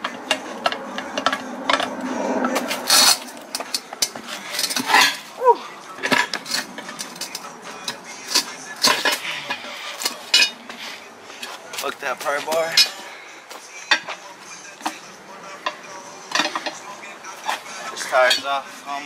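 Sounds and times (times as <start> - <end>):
pry bars clanking on wheel rim: 0.0 - 5.3, 6.0 - 10.6, 15.6 - 16.8.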